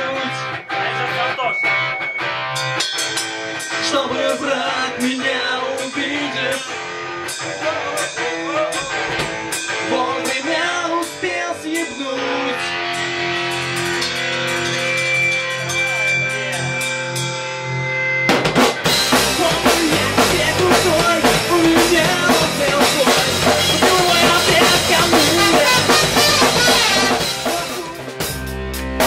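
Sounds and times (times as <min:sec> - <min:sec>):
guitar rock music: 0:00.0 - 0:29.0.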